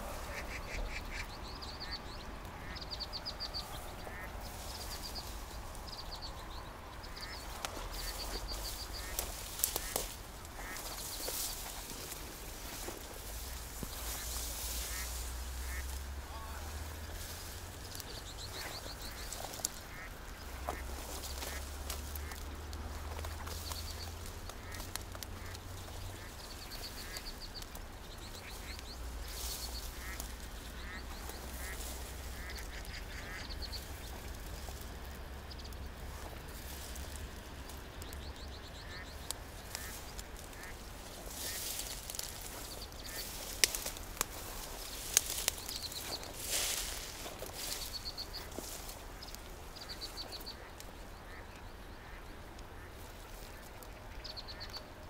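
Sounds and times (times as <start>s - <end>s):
rustling: 7.2s - 38.2s, 38.8s - 51.4s.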